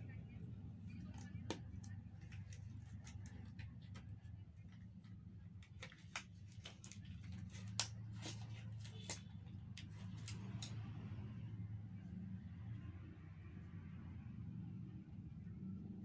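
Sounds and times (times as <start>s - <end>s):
steady low hum: 0.0s - 16.0s
rubber gloves snapping and crinkling: 5.6s - 10.8s.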